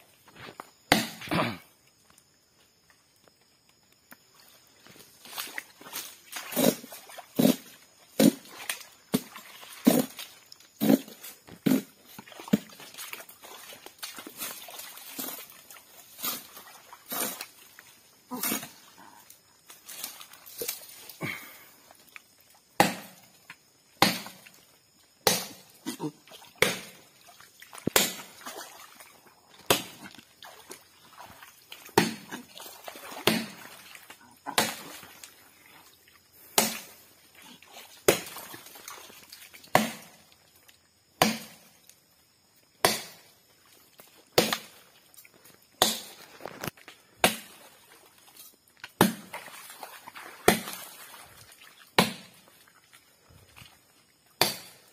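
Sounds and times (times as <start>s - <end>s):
axe chopping palm trunk: 0.9s - 1.6s, 6.5s - 8.5s, 9.1s - 10.2s, 10.8s - 12.8s, 22.8s - 23.4s, 24.0s - 24.6s, 25.2s - 27.1s, 27.8s - 28.4s, 29.6s - 30.2s, 31.9s - 32.5s, 33.2s - 33.7s, 34.4s - 35.0s, 36.5s - 37.0s, 38.0s - 38.4s, 39.7s - 40.2s, 41.2s - 41.7s, 42.8s - 43.3s, 44.4s - 44.7s, 45.8s - 46.2s, 47.2s - 47.6s, 48.9s - 49.4s, 50.5s - 50.8s, 52.0s - 52.4s, 54.4s - 54.8s.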